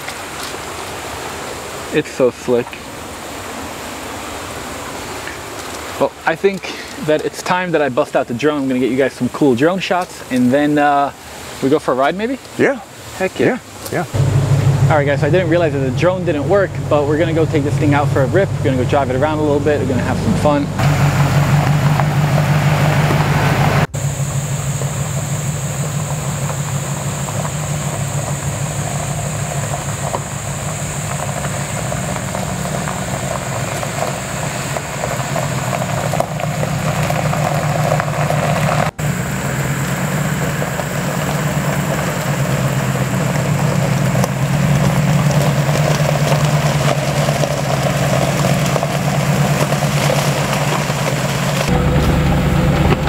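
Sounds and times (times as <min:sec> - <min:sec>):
truck engine running at low speed: 0:14.0 - 0:53.0.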